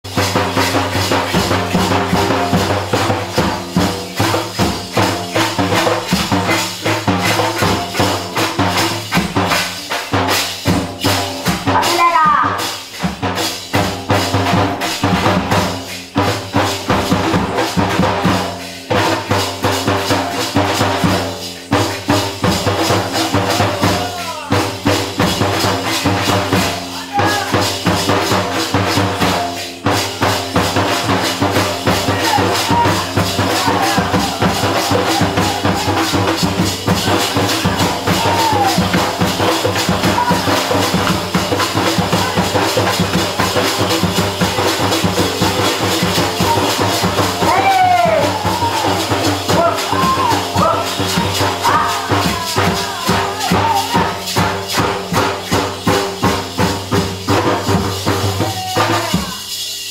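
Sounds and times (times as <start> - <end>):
barrel drums hand-played: 0.0 - 59.9
frame drum struck with stick: 13.0 - 59.4
person singing: 47.4 - 54.4.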